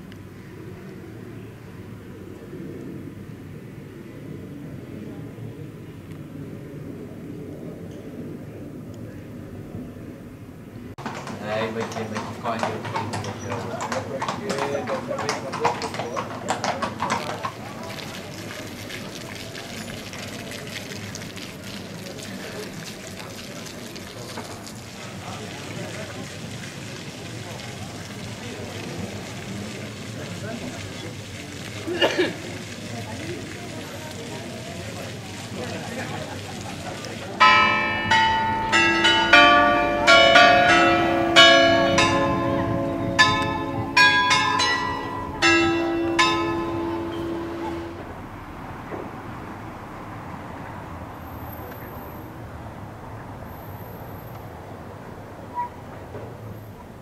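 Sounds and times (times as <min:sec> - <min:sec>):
fountain water splashing: 0:10.8 - 0:57.0
carillon bells playing a tune: 0:37.4 - 0:48.0.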